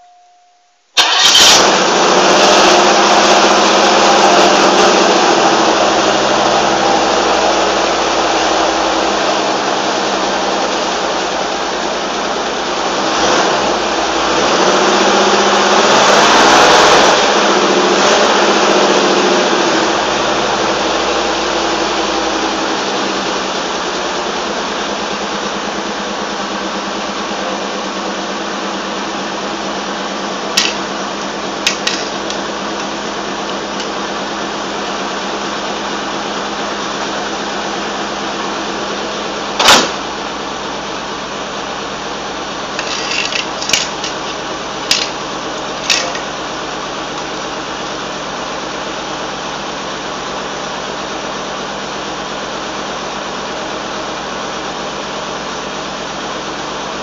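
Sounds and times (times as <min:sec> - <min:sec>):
car engine idling: 0:01.0 - 0:57.0
sharp knocks and clanks: 0:30.5 - 0:30.9, 0:31.6 - 0:33.0, 0:39.6 - 0:40.0.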